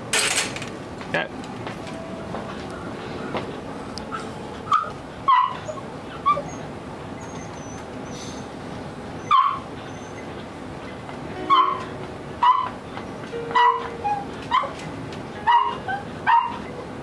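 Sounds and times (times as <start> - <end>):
steady background hum: 0.0 - 17.0
dogs barking: 4.1 - 6.7, 9.2 - 10.3, 11.5 - 12.8, 13.5 - 16.8.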